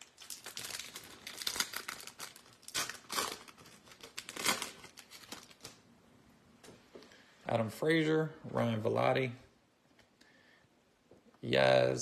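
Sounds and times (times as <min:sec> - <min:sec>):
foil wrapper crinkling and tearing: 0:00.0 - 0:05.8.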